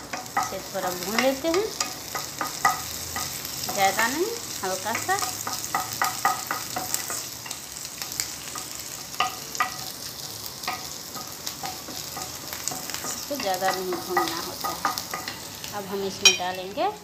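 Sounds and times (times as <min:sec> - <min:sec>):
garlic sizzling in oil: 0:00.0 - 0:17.0.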